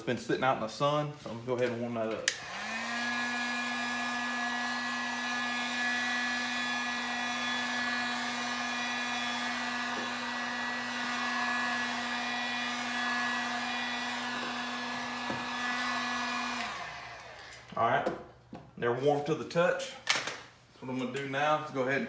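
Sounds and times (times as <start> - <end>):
heat gun motor hum: 2.3 - 17.7.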